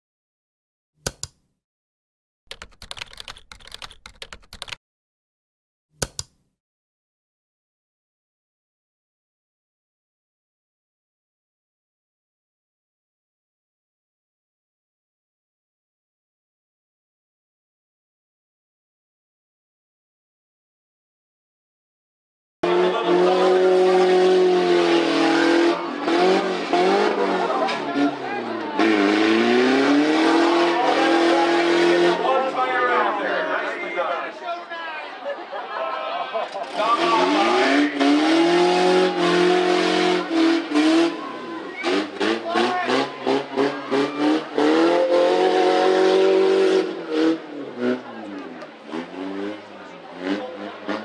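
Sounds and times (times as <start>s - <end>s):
sharp clicks: 1.0s - 1.4s, 6.0s - 6.4s
truck engine revving hard: 22.6s - 33.6s, 36.6s - 51.0s.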